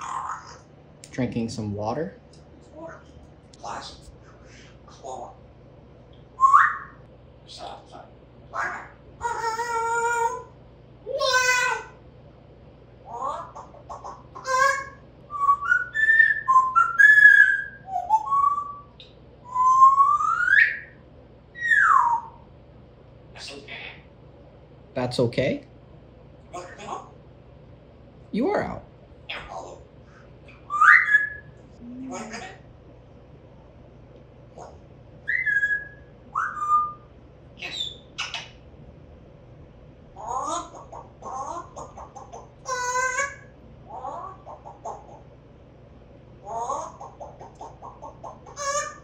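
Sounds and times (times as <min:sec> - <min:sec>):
parrot harsh calls: 0:00.0 - 0:00.7, 0:03.6 - 0:05.4, 0:08.5 - 0:12.0, 0:13.0 - 0:18.8, 0:19.5 - 0:21.0, 0:21.6 - 0:22.4, 0:23.3 - 0:24.1, 0:26.5 - 0:27.2, 0:29.3 - 0:32.7, 0:34.5 - 0:38.6, 0:40.2 - 0:45.3, 0:46.4 - 0:49.0
parrot whistling: 0:06.4 - 0:07.0, 0:08.5 - 0:10.5, 0:13.0 - 0:22.4, 0:30.5 - 0:32.6, 0:34.6 - 0:38.6, 0:40.2 - 0:45.2, 0:46.4 - 0:49.0.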